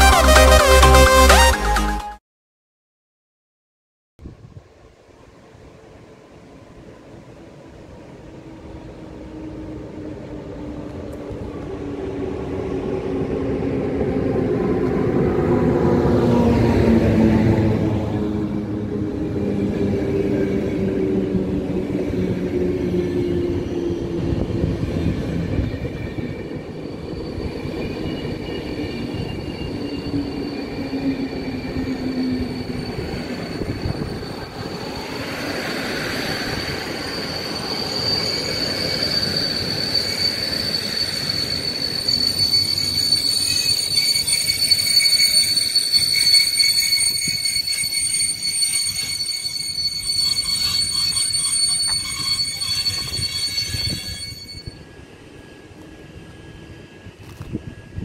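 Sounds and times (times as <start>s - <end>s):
train coaches rolling past: 4.5s - 58.0s
brake and wheel squeal: 21.9s - 57.9s.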